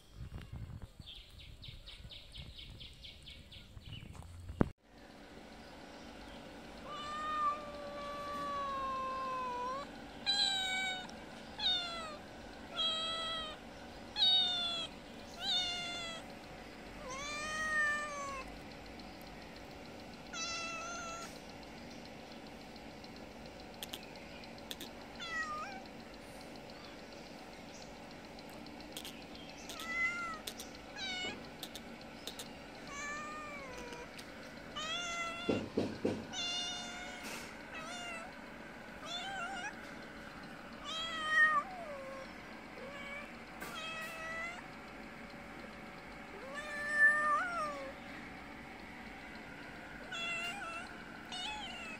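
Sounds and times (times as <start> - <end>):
cat meowing: 6.8 - 13.6, 14.2 - 16.2, 17.0 - 18.5, 20.3 - 21.4, 24.7 - 25.9, 29.0 - 34.2, 34.8 - 38.3, 39.0 - 39.8, 40.8 - 44.6, 46.3 - 48.0, 50.0 - 51.9
faint clicks: 18.0 - 33.0, 33.6 - 35.5.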